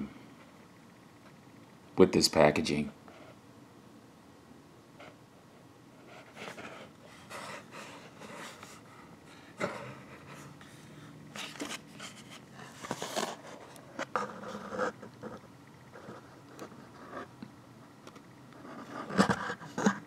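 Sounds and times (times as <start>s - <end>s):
cardboard folder rustling: 11.3s - 15.0s.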